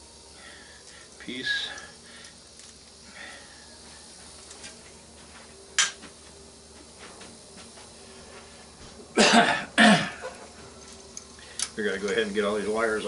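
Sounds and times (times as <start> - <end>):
faint handling clicks: 11.1 - 12.2.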